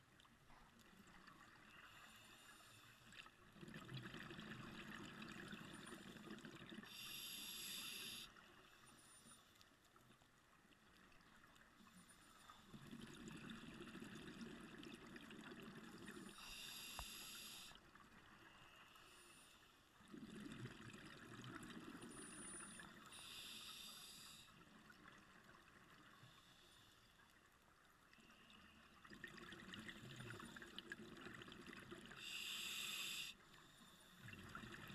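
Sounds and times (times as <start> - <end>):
regulator inhale hiss: 1.8 - 3.1, 6.8 - 9.5, 16.2 - 17.8, 22.1 - 24.6, 32.2 - 34.2.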